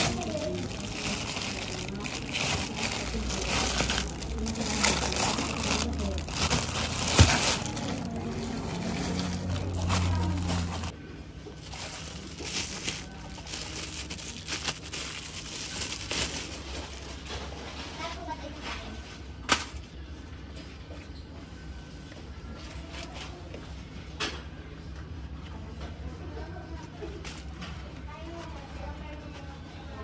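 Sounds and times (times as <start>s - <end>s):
plastic wrapping crinkling: 0.0s - 11.0s, 11.6s - 17.4s.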